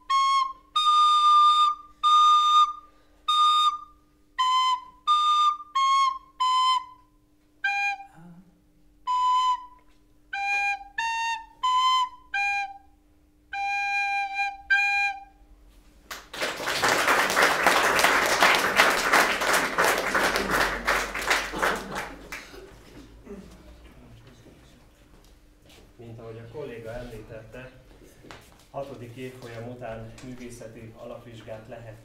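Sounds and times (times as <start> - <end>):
child playing recorder: 0.0 - 8.2, 9.0 - 15.5
audience applauding: 16.1 - 23.0.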